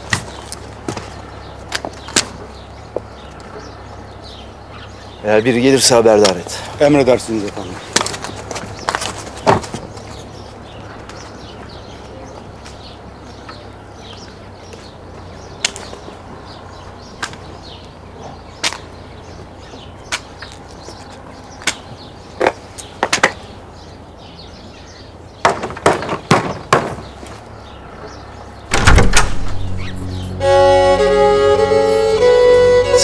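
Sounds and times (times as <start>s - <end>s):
door opening with heavy thud: 28.7s - 30.2s
string music with violin: 29.6s - 33.0s.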